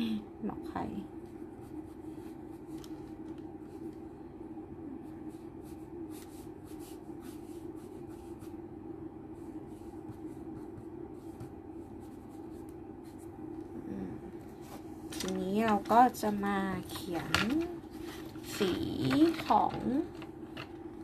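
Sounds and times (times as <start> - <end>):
low hum: 0.0 - 21.0
pen scratching on paper: 5.1 - 8.6, 9.3 - 13.3.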